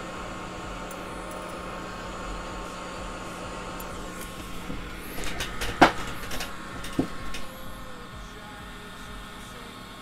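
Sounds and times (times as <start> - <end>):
equipment fan whirring: 0.0 - 10.0
small tools clicking: 5.1 - 7.6.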